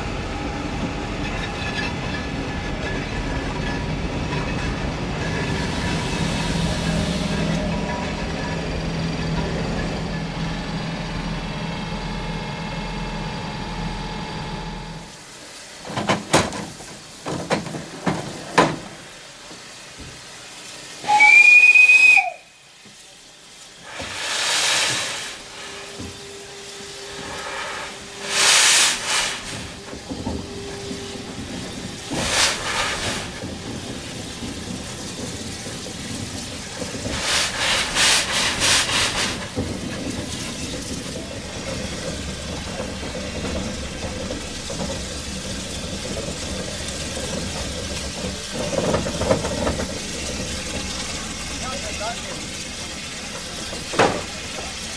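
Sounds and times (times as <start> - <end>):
steam hissing: 1.8 - 11.8, 15.0 - 54.9
rhythmic steam beats: 1.9 - 54.9
steam whistle blast: 21.0 - 22.6.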